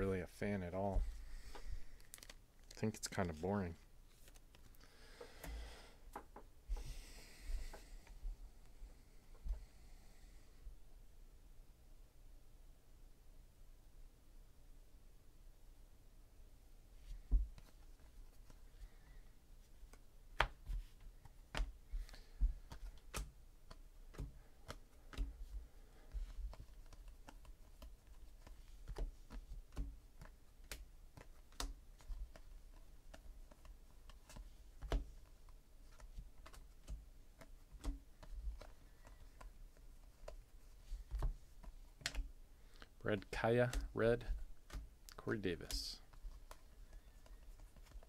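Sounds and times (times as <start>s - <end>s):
cards clicking: 2.0s - 3.4s, 4.2s - 4.8s, 26.1s - 40.4s, 41.0s - 48.0s.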